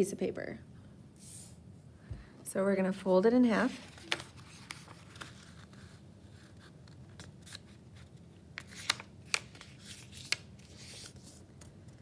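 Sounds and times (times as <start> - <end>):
faint steady hum: 0.0 - 12.0
paper crackles and clicks: 3.8 - 5.9, 8.5 - 12.0.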